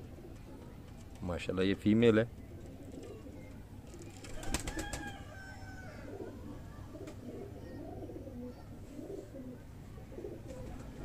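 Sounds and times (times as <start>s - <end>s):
pigeons cooing: 0.0s - 1.2s, 2.4s - 11.0s.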